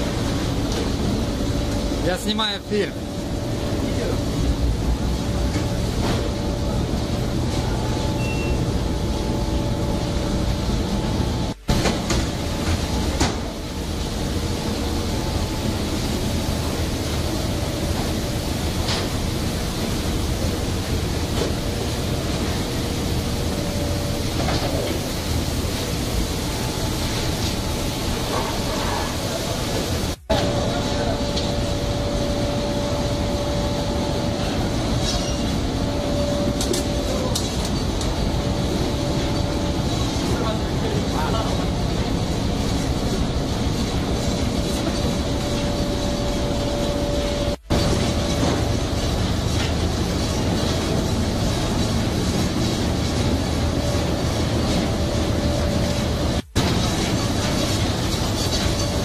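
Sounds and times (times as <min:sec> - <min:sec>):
low rumble of ship engines: 0:00.0 - 0:59.0
steady hum: 0:00.0 - 0:59.0.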